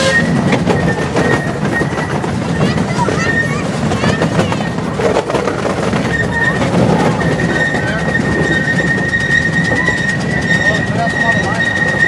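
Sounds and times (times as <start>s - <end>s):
train wheels squealing: 0.0s - 4.8s, 5.8s - 12.0s
small train rumbling and clattering: 0.0s - 12.0s.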